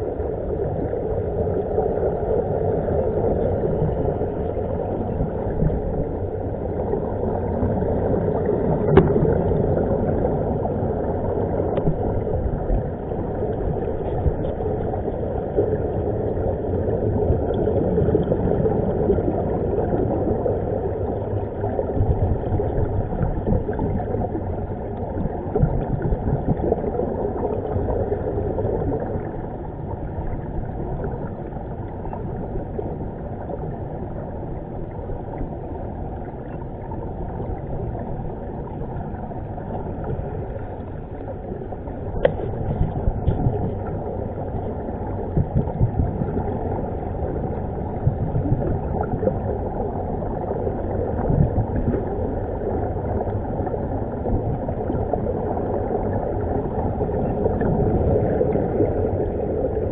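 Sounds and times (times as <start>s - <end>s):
underwater air bubbling: 0.0s - 59.9s
click: 11.7s - 12.0s.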